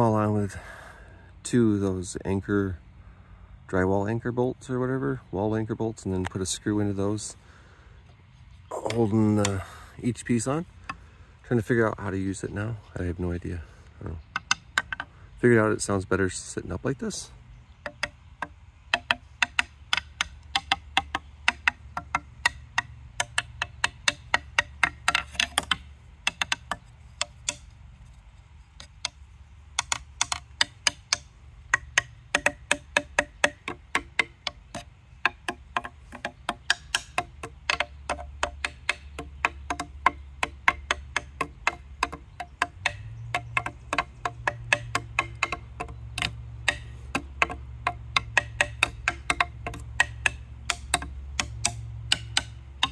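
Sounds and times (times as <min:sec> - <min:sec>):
wooden xylophone knocks: 0:14.3 - 0:15.1, 0:17.8 - 0:27.7, 0:28.8 - 0:52.9.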